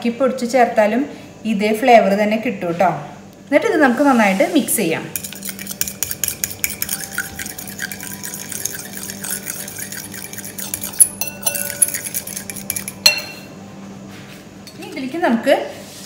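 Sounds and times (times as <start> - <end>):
utensil beating egg in bowl: 5.1 - 13.4.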